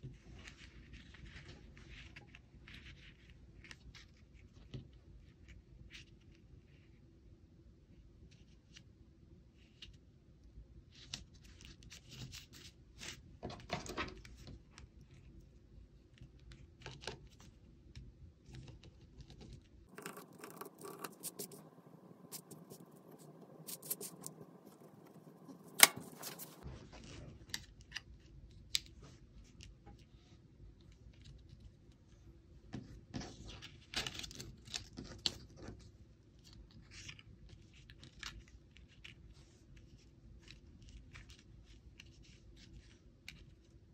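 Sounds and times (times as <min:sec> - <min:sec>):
bone folder rubbing cardstock: 0:19.9 - 0:26.6
cardstock scraping and rustling: 0:19.9 - 0:27.2
sharp click: 0:20.0 - 0:26.6.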